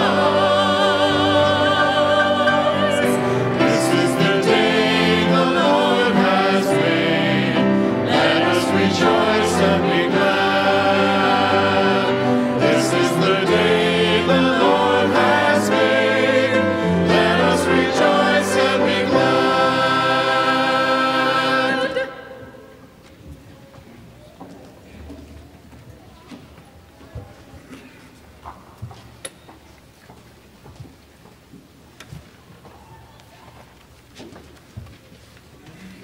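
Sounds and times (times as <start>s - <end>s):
cantor leading singing: 0.0s - 22.9s
congregation singing: 0.0s - 23.0s.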